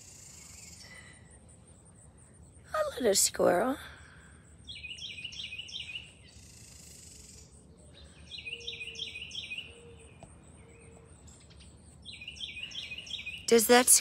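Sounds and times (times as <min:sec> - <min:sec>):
songbird chirping phrase: 0:00.0 - 0:14.0.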